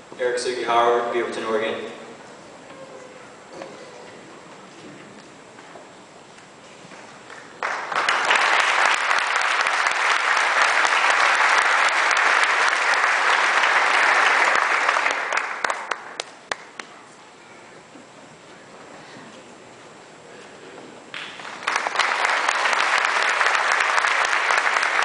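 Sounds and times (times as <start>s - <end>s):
audience applauding: 6.9s - 16.9s, 21.1s - 25.0s.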